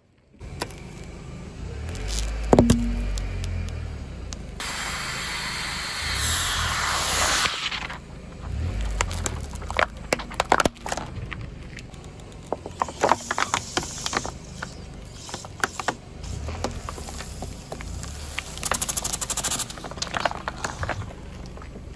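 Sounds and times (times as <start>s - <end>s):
plastic bottle crackling: 1.9s - 3.5s, 8.5s - 14.4s
hiss of escaping gas: 4.6s - 7.7s.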